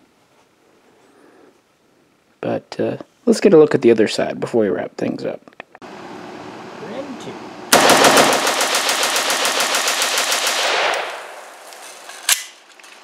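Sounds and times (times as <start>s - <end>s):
rapid gunshots: 7.7s - 11.4s.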